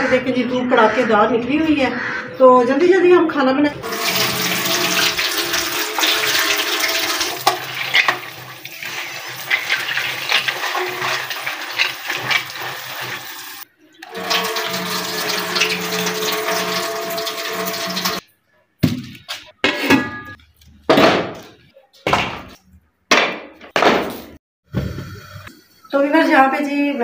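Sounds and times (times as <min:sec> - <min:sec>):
running water splashing into vessel: 0:03.8 - 0:18.2.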